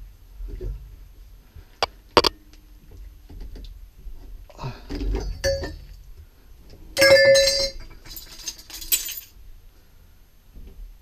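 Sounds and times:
loose metal parts clinking: 0:07.0 - 0:09.3.

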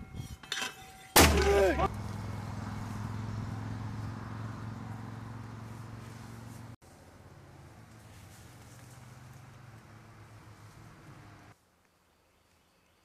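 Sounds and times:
mortar firing: 0:01.2 - 0:01.9.

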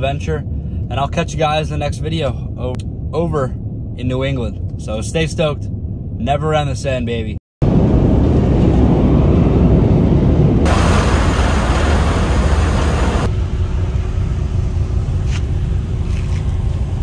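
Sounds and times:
ferry engine rumble: 0:00.0 - 0:17.0
wind: 0:00.0 - 0:17.0
churning wake hiss: 0:10.7 - 0:13.3
water rushing along hull: 0:10.7 - 0:13.3.

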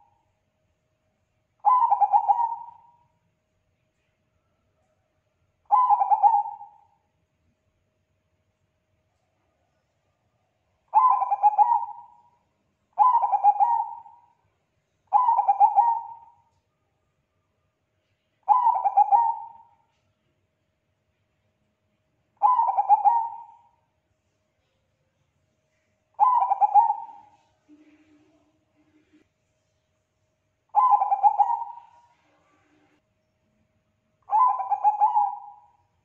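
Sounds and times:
dove cooing: 0:01.6 - 0:03.0, 0:05.7 - 0:06.9, 0:10.9 - 0:12.2, 0:13.0 - 0:14.3, 0:15.1 - 0:16.4, 0:18.5 - 0:19.7, 0:22.4 - 0:23.7, 0:26.2 - 0:28.4, 0:30.7 - 0:32.5, 0:34.3 - 0:35.8.

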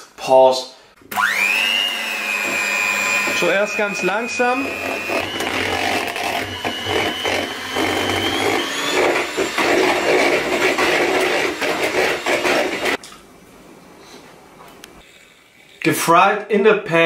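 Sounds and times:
electric hand mixer whirring: 0:01.1 - 0:13.0.

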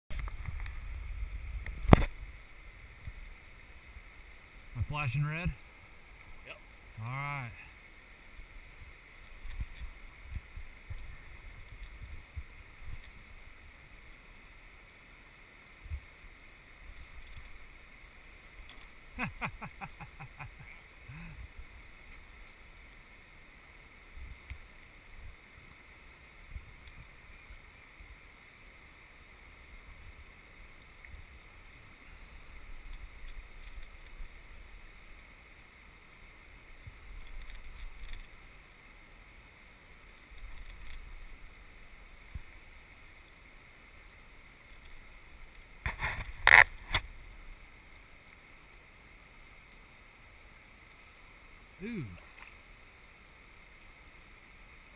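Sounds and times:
wind rumble on microphone: 0:00.1 - 0:03.3, 0:08.7 - 0:13.5.

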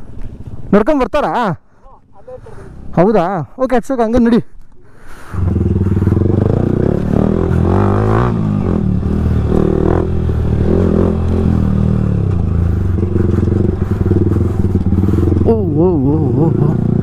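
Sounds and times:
motorcycle engine under load: 0:05.3 - 0:17.0.

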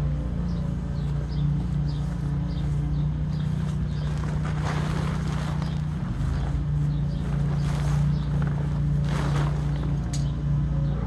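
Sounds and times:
steady low hum: 0:00.0 - 0:11.0
tent fabric rustling: 0:00.9 - 0:10.2.

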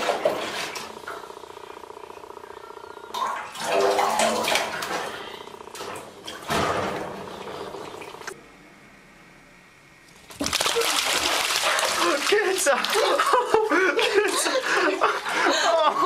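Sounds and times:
water splashing: 0:03.2 - 0:05.0, 0:10.2 - 0:13.6.

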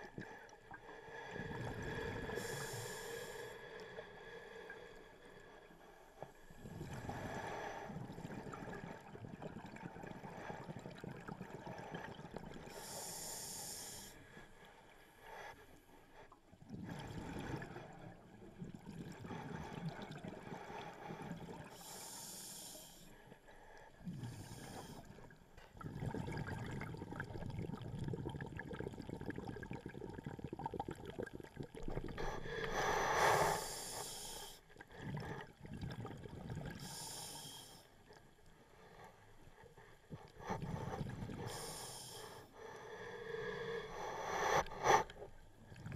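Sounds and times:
regulator breath hiss: 0:12.8 - 0:14.1, 0:21.8 - 0:23.1, 0:32.6 - 0:34.6, 0:36.8 - 0:37.9, 0:41.4 - 0:42.5.

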